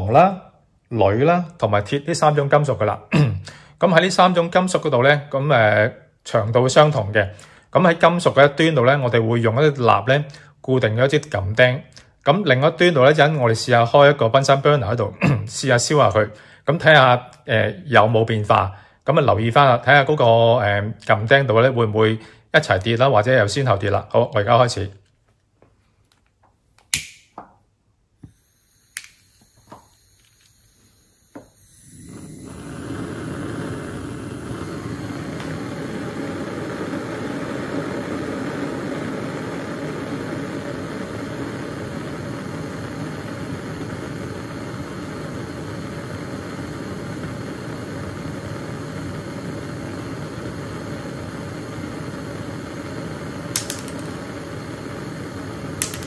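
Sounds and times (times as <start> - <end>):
lighter clicking: 26.8 - 27.3, 28.2 - 56.0
gas burner flame rushing: 28.3 - 56.0.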